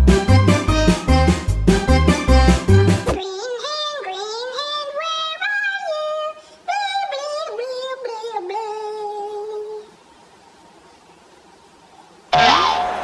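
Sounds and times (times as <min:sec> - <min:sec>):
high-pitched wordless singing: 0:02.2 - 0:10.0.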